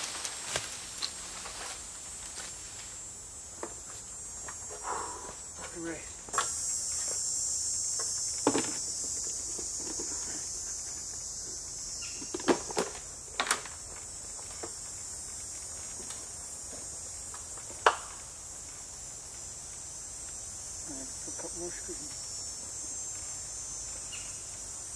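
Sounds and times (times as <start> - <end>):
high-pitched insect chorus: 0.0 - 24.9.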